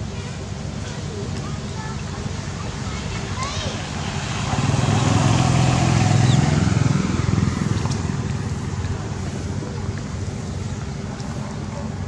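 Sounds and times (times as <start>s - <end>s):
motorbike engine passing: 3.8s - 9.5s.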